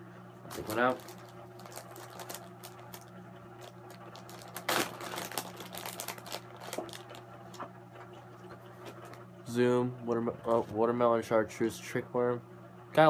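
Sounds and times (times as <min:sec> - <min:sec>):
plastic bag crinkling: 0:00.5 - 0:07.7.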